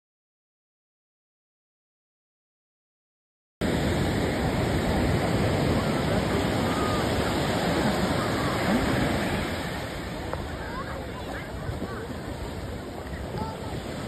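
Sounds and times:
ocean surf breaking on shore: 0:03.6 - 0:14.0.

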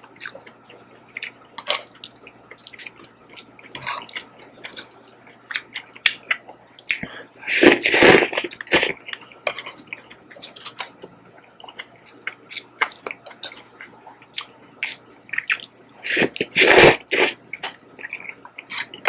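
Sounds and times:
slurping noodles: 0:07.5 - 0:08.9, 0:16.0 - 0:17.4.

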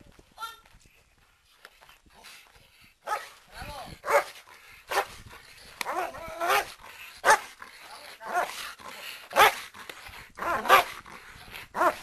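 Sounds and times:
dog barking: 0:04.1 - 0:05.1, 0:05.9 - 0:07.5, 0:09.3 - 0:09.6, 0:10.4 - 0:10.9.

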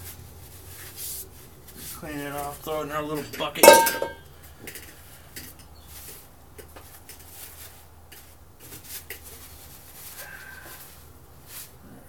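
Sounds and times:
rag rustling and scraping: 0:03.6 - 0:04.2.

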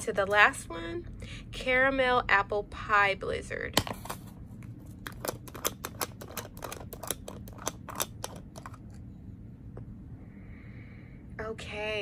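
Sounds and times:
clicks and taps of handling packaging: 0:04.9 - 0:08.9.

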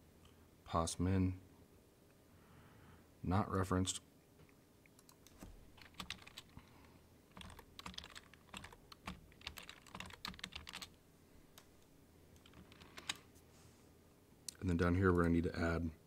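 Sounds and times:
typing on computer keyboard: 0:05.0 - 0:06.6, 0:07.3 - 0:11.0, 0:12.4 - 0:13.2.

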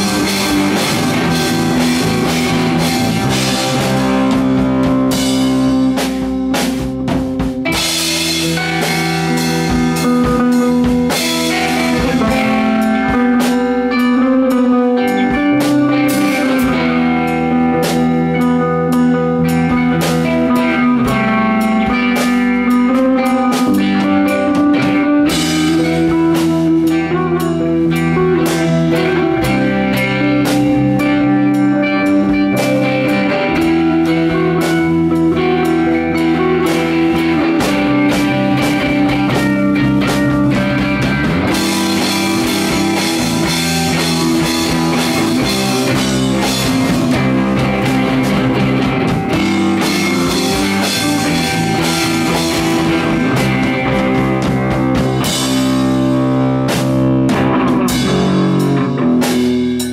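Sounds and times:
drum kit: 0:00.0 - 0:59.9
electric bass: 0:00.0 - 0:59.9
electric guitar: 0:00.0 - 0:59.9.

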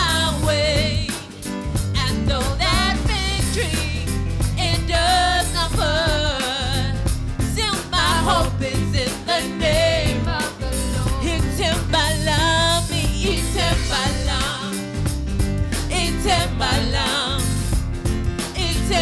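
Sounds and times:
woman singing with vibrato: 0:00.0 - 0:01.4, 0:02.0 - 0:04.0, 0:04.6 - 0:14.8, 0:15.9 - 0:17.6, 0:18.5 - 0:19.0
band with drums and keyboard: 0:00.0 - 0:19.0.

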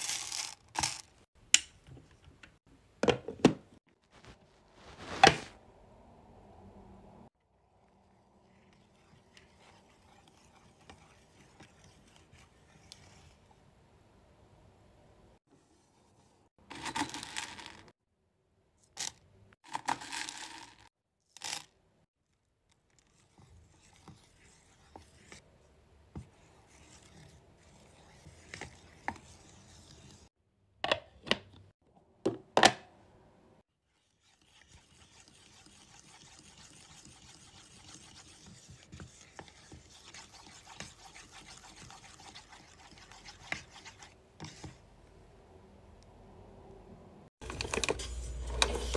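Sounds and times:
spatula scraping metal pot: 0:08.5 - 0:13.4, 0:33.9 - 0:44.7.

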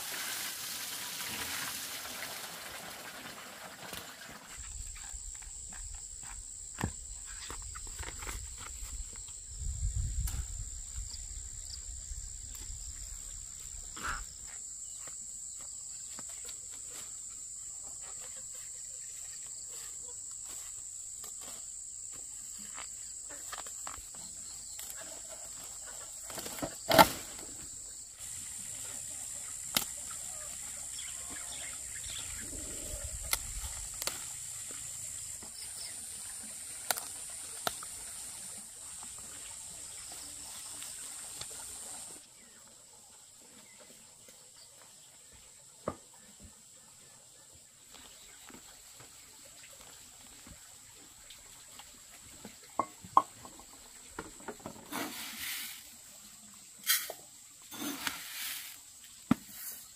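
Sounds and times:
rustling in grass and leaves: 0:00.0 - 0:42.2, 0:54.8 - 0:59.9
insects droning: 0:04.4 - 0:44.0.

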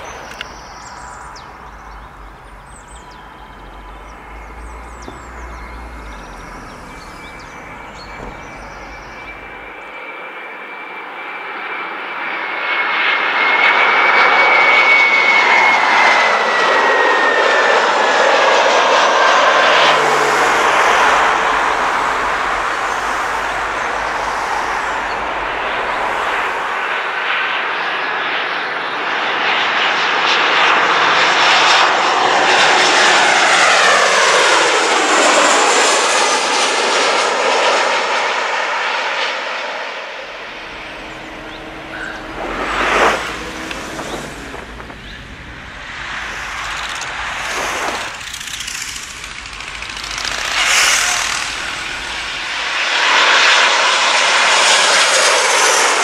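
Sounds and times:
jet airliner passing overhead: 0:00.0 - 0:56.0
jet engine whine falling in pitch: 0:00.0 - 0:56.0.

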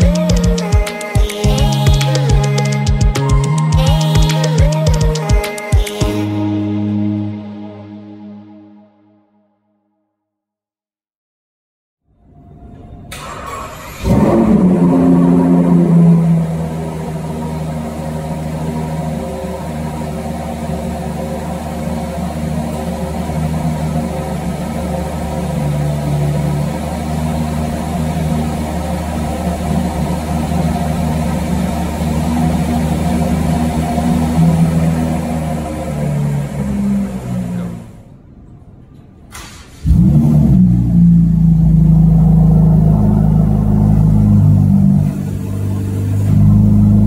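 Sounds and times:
car engine starting and idling: 0:00.0 - 0:08.5, 0:12.6 - 0:47.0.

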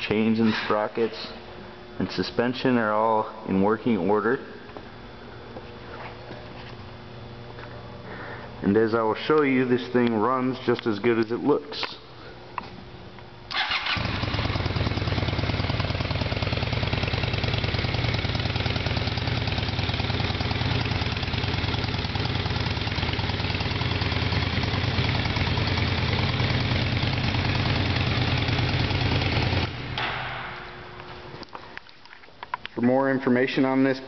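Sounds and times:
motorcycle engine idling: 0:13.5 - 0:30.8.

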